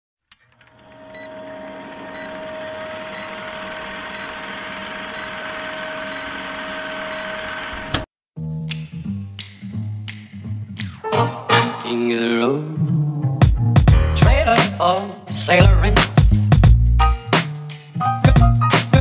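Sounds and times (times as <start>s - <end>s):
film projector whirring clatter: 0.3s - 8.1s
short blips: 0.6s - 8.1s
music: 8.4s - 19.0s.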